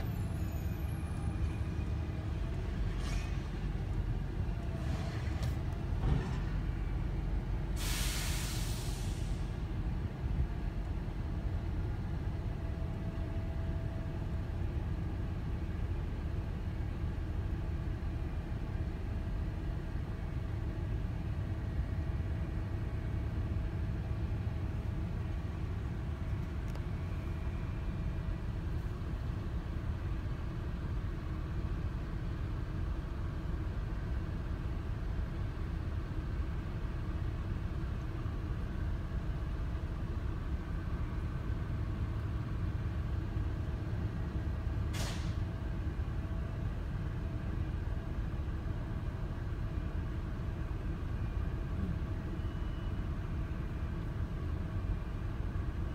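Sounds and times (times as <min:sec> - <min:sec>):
vehicle engines idling: 0:00.0 - 0:55.9.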